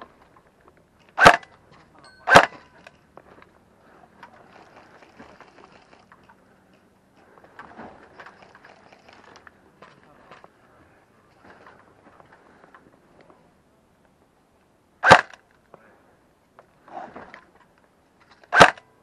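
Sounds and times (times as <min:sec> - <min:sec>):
loud short cracks: 0:01.2 - 0:01.5, 0:15.0 - 0:15.4, 0:18.5 - 0:18.9
faint ticks and rustling: 0:02.8 - 0:13.4.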